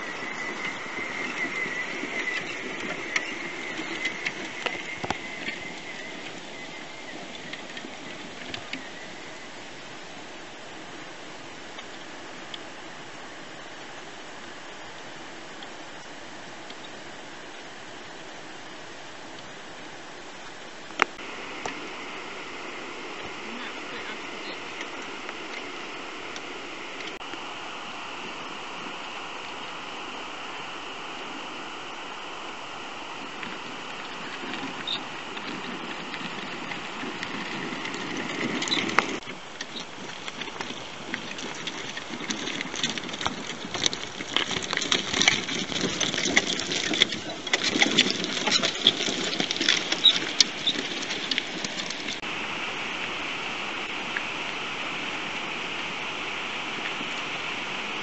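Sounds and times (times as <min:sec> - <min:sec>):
tyres crunching over stones: 0:00.0 - 0:10.0, 0:33.2 - 0:52.3
steady hiss: 0:00.0 - 0:58.0.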